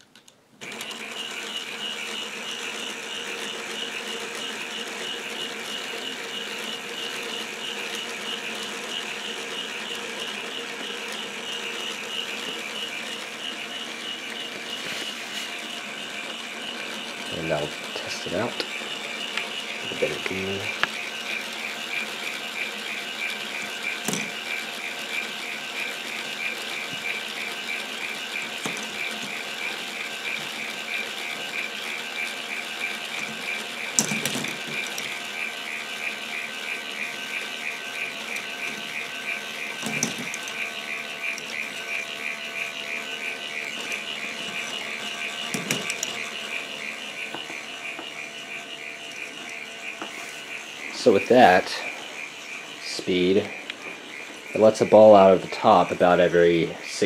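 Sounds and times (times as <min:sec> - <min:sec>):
plastic gears clicking: 0:16.0 - 0:51.7.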